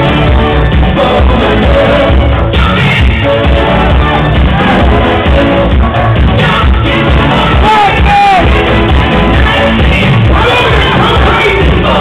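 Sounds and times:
loud dance music with heavy bass: 0.0s - 12.0s.

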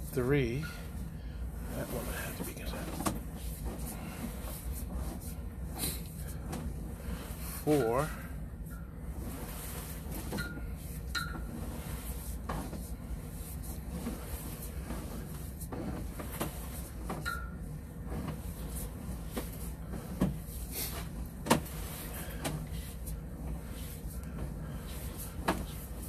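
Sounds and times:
steady low hum: 0.0s - 26.0s
cable knocking and rattling: 2.4s - 5.2s, 10.0s - 26.0s.

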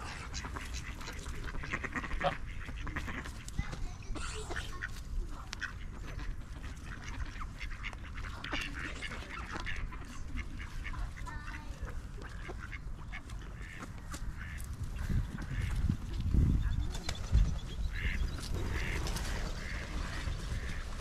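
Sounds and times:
ducks quacking: 0.0s - 21.0s
steady low rumble: 5.0s - 19.0s.

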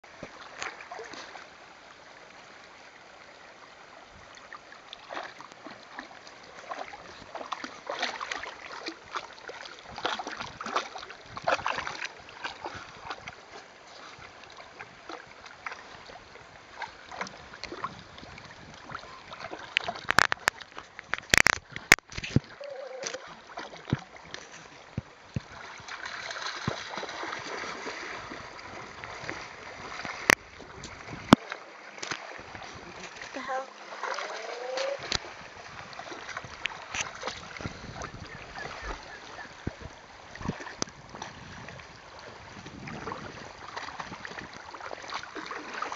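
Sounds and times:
flowing stream water: 0.0s - 45.9s
dog pawing and splashing water: 25.4s - 30.4s.

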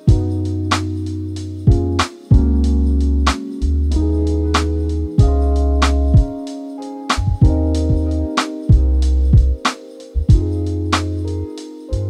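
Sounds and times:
deep bass line: 0.0s - 6.3s, 7.2s - 9.6s, 10.2s - 12.0s
steady drum beat: 0.0s - 11.4s
held chords: 0.0s - 12.0s
sharp snare-like hit: 4.6s - 4.8s.

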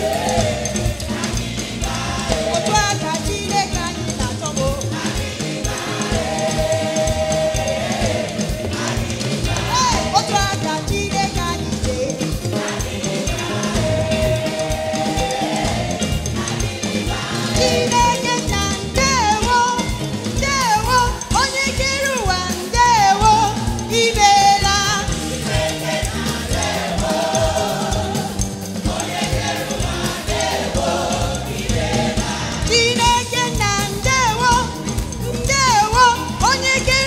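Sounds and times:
choir singing gospel music: 0.0s - 37.0s
drum kit beat and band: 0.0s - 37.0s.

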